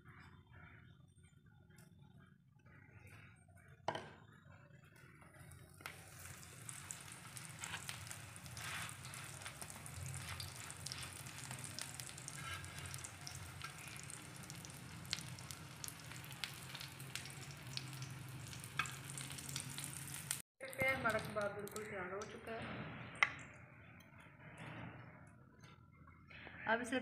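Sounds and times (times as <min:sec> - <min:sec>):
patties sizzling in oil: 0:05.0 - 0:22.4.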